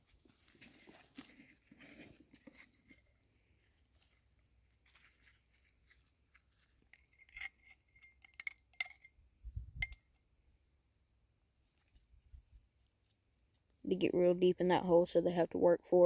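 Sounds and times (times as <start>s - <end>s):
small hard objects clinking: 6.9s - 9.2s.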